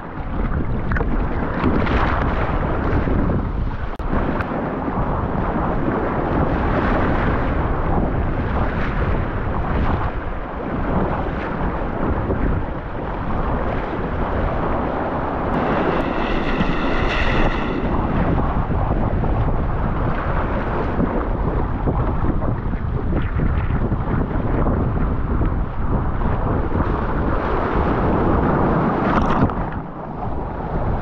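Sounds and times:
wind buffeting microphone: 0.0s - 31.0s
high-pitched whine: 15.6s - 19.9s.

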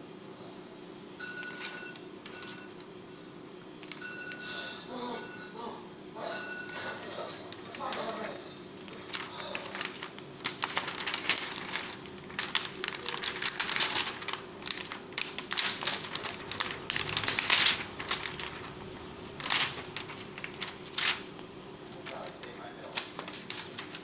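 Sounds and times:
plastic sheets crinkling: 1.3s - 3.0s, 3.8s - 4.4s, 7.2s - 24.0s.

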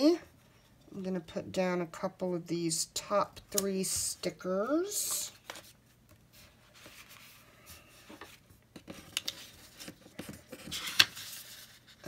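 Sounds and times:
paper pages rustling: 4.9s - 12.0s.

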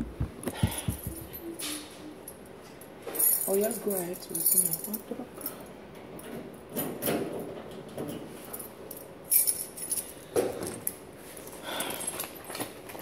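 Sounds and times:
keys jangling: 3.1s - 5.7s, 8.4s - 13.0s.

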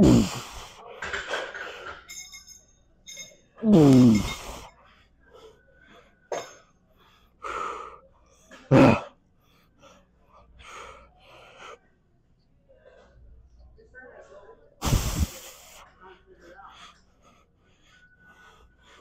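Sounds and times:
man grunting with strain: 0.0s - 0.6s, 3.6s - 4.6s, 8.7s - 9.1s
man breathing hard and gasping: 0.0s - 0.8s, 3.6s - 4.7s, 14.8s - 15.7s.

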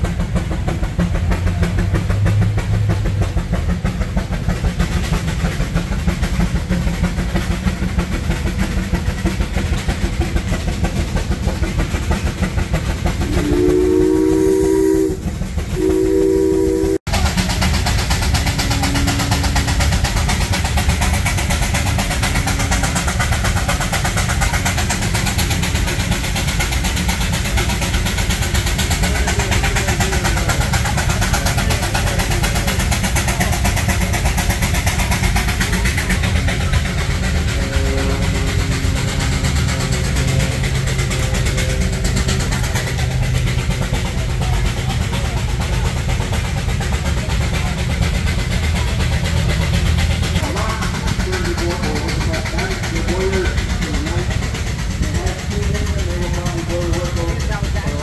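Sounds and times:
engine machinery beating: 0.0s - 58.0s
steam whistle chord: 13.2s - 17.0s.

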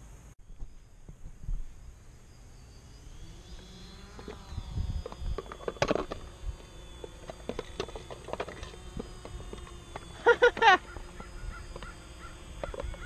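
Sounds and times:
drone motors and propellers whining: 0.1s - 13.0s.

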